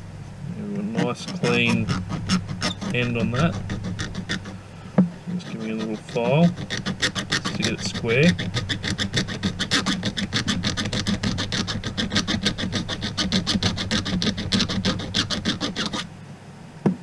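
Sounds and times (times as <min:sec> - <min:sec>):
file rasping on cable end: 0:00.5 - 0:04.6, 0:05.2 - 0:16.1.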